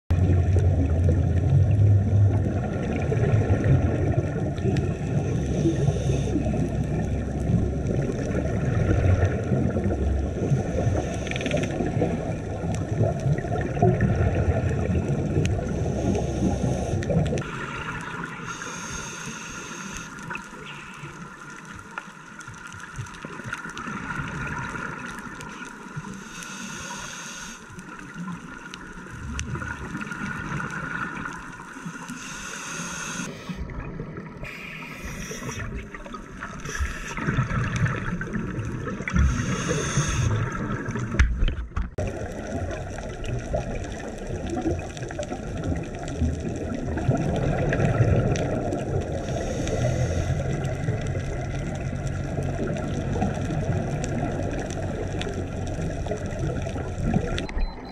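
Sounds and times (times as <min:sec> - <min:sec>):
exhaled bubbles gurgling: 0:00.1 - 0:27.2, 0:27.8 - 0:57.9
faint steady hum: 0:00.1 - 0:44.6
scuba regulator breathing hiss: 0:05.4 - 0:06.7, 0:15.6 - 0:21.1, 0:26.1 - 0:27.8, 0:31.8 - 0:33.6, 0:34.4 - 0:35.9, 0:36.6 - 0:37.4, 0:39.1 - 0:40.6, 0:49.2 - 0:50.6.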